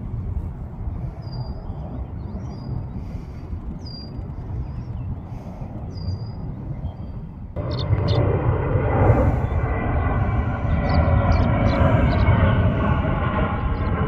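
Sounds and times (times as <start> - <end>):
distant jet airliner rumble: 0.0 - 14.0
bird chirping: 5.9 - 8.3, 10.8 - 12.4.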